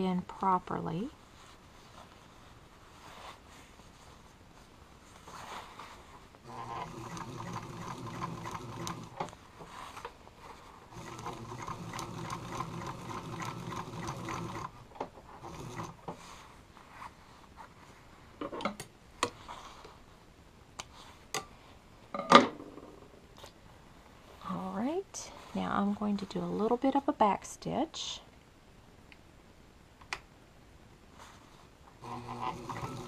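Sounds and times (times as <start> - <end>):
sewing machine running: 6.5 - 9.2, 10.9 - 14.8, 15.4 - 16.0, 32.0 - 33.0.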